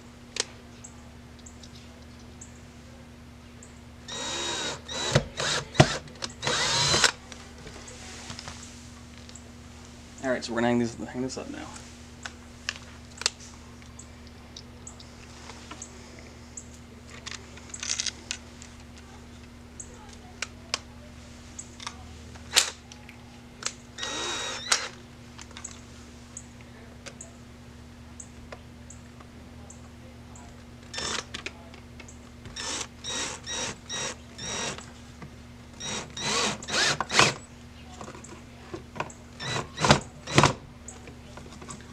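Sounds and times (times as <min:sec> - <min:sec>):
cordless drill driving screws: 0:04.1 - 0:07.2, 0:24.0 - 0:25.0, 0:30.9 - 0:31.2, 0:32.5 - 0:34.8, 0:35.8 - 0:37.4, 0:39.4 - 0:40.5.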